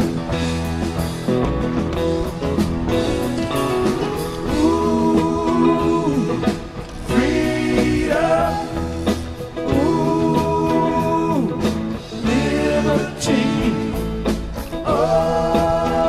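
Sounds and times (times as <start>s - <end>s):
guitar and band: 0.0s - 16.0s
person singing long notes: 4.4s - 16.0s.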